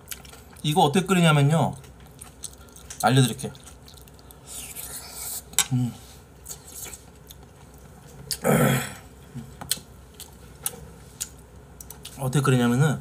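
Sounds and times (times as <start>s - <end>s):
person belching: 8.4s - 9.1s
person grunting: 8.4s - 9.1s.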